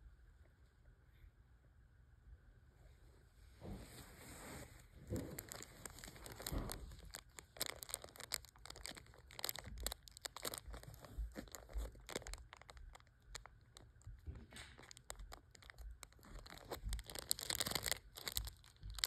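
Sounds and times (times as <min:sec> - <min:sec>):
plastic bag crinkling: 0:05.0 - 0:19.0.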